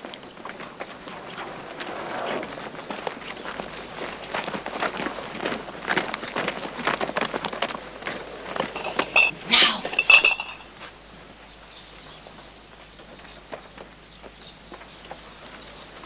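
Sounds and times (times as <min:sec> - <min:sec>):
quiet outdoor ambience: 0:00.0 - 0:16.0
footsteps on dirt: 0:02.7 - 0:09.3
glass bottles clinking in crates: 0:08.6 - 0:10.8.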